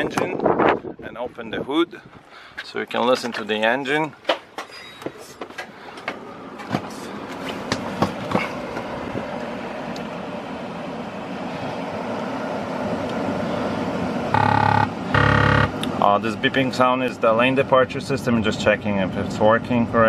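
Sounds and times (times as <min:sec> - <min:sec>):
diesel engine starting and running: 0:01.9 - 0:20.0
engine clicks and knocks: 0:03.0 - 0:09.5
warning system beeping: 0:14.3 - 0:15.8.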